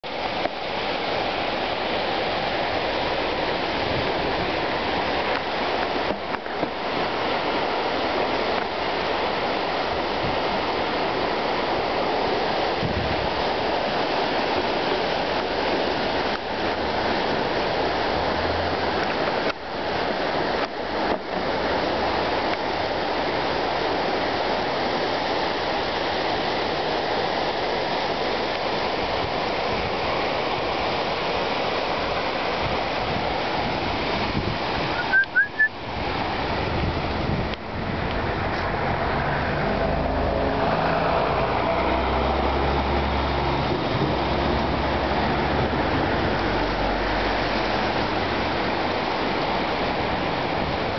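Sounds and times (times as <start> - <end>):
water rushing: 0.0 - 50.9.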